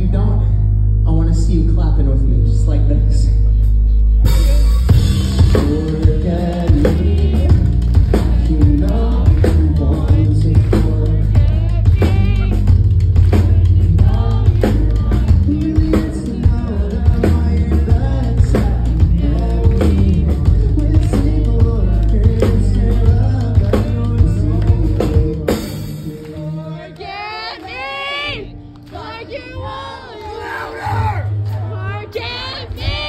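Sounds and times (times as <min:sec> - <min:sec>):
person singing: 0:02.3 - 0:33.0
rock band playing: 0:03.6 - 0:26.6.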